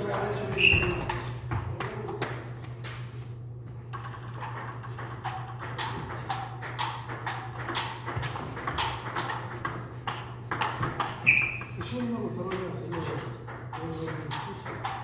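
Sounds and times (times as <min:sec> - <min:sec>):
steady low hum: 0:00.0 - 0:15.0
table tennis ball clicking: 0:03.9 - 0:15.0.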